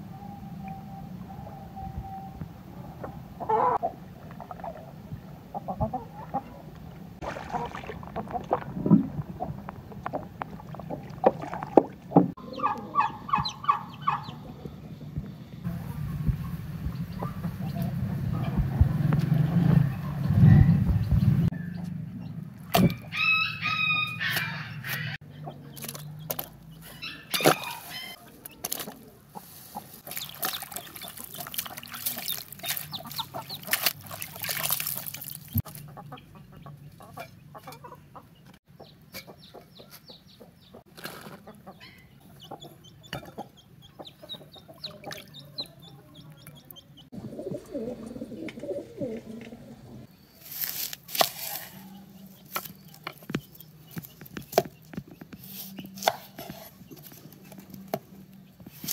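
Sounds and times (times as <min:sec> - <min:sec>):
chickens calling: 0:00.0 - 0:58.9
water splashing in a bucket: 0:07.2 - 0:12.4, 0:30.0 - 0:35.8, 0:44.9 - 0:45.4
low rumble: 0:14.5 - 0:22.6.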